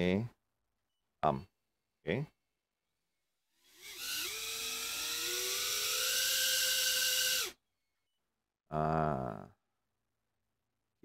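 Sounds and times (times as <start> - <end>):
drone motors whining: 3.6 - 7.6.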